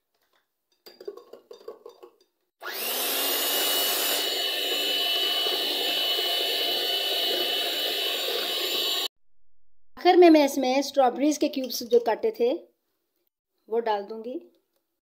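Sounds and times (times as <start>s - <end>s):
electric hand mixer whining: 2.6s - 9.1s.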